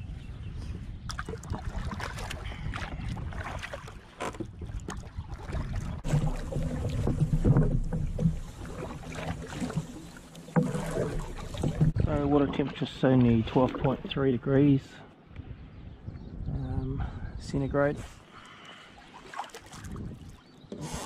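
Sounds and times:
wind buffeting microphone: 0.0 - 9.1, 10.8 - 14.4, 15.3 - 18.2, 19.7 - 20.4
paddle splashing in water: 1.1 - 14.2, 18.4 - 21.0
paddle knocking against kayak: 3.6 - 12.8.

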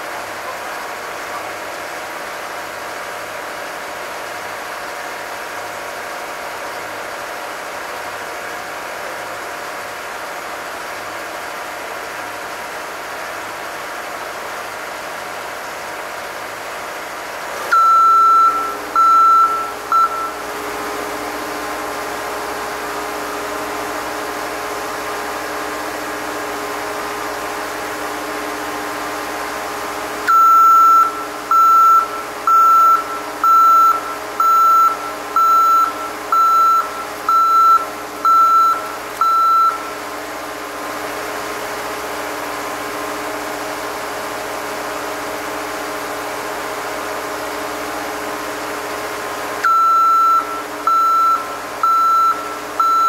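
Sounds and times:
heavy machinery engine running: 0.0 - 53.0
high-pitched warning beeps: 17.7 - 20.4, 30.3 - 39.9, 49.6 - 53.0.

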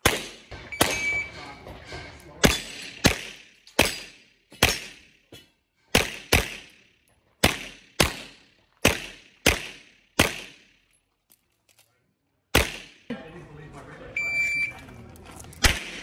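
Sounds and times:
pistol shots with echo: 0.0 - 1.4, 2.4 - 5.3, 5.9 - 10.8, 12.5 - 13.1, 15.6 - 16.0.

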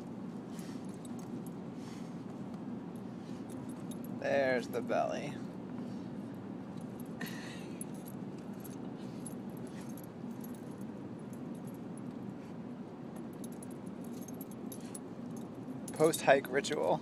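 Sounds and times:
steady low hum: 0.0 - 17.0
dog collar tags jingling: 0.6 - 1.6, 2.9 - 4.2, 6.7 - 12.4, 13.2 - 16.9.

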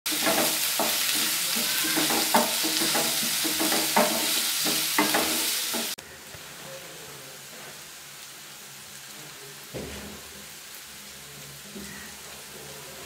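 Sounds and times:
wooden spatula stirring: 0.1 - 6.0
vegetables sizzling in a frying pan: 0.1 - 13.0.

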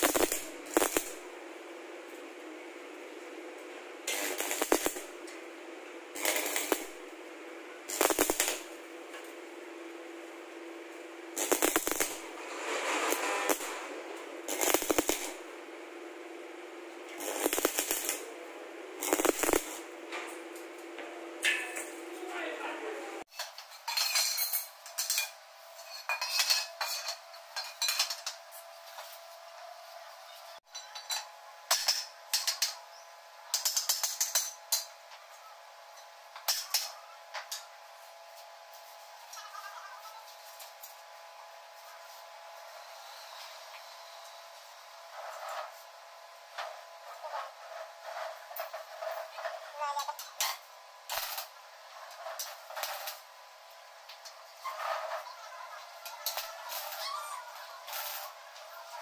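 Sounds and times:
arc welder crackling: 0.0 - 22.2, 33.5 - 35.0, 36.3 - 59.0.

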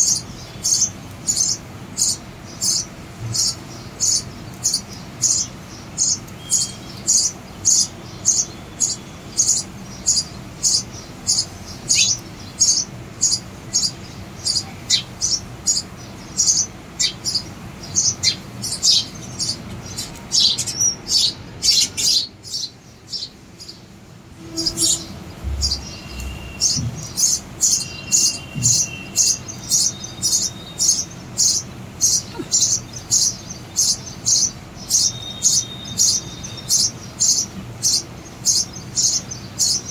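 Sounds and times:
sparrows chirping: 0.0 - 39.9
low knock: 25.4 - 27.2.

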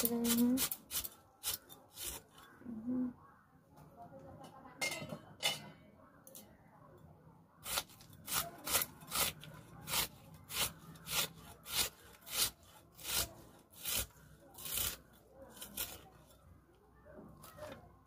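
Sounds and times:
knife slicing onion: 0.0 - 2.4, 7.6 - 16.4.

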